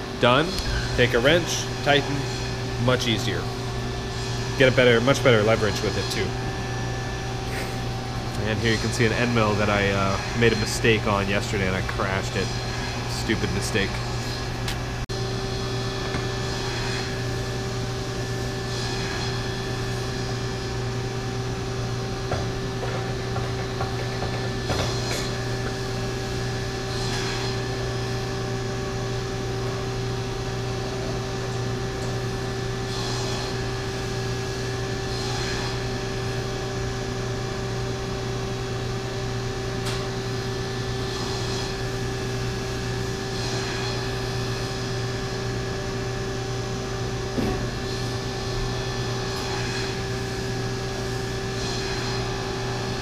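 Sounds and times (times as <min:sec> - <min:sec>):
machinery humming: 0:00.0 - 0:53.0.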